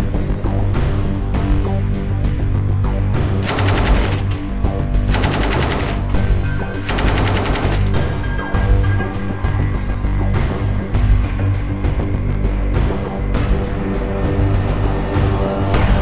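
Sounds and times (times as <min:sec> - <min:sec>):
background music: 0:00.0 - 0:16.0
machine gun automatic bursts: 0:03.4 - 0:04.5, 0:05.1 - 0:08.2.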